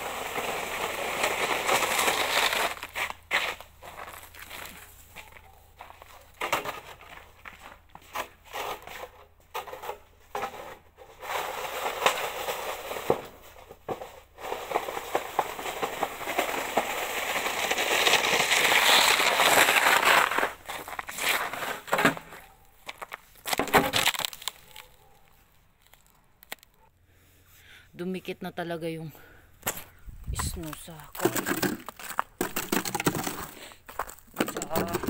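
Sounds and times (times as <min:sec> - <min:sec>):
shovel scraping slushy snow: 0:00.0 - 0:04.2, 0:14.4 - 0:22.4
footsteps in snow: 0:01.4 - 0:08.1, 0:17.0 - 0:23.5, 0:29.7 - 0:35.0.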